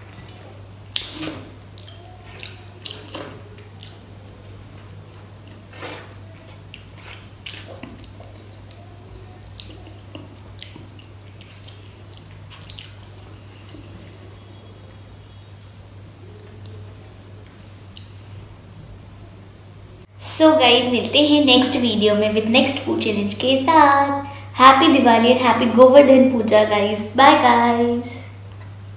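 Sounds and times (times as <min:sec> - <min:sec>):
wet mouth smacks chewing: 0:00.1 - 0:04.0, 0:06.7 - 0:08.8, 0:09.4 - 0:13.3.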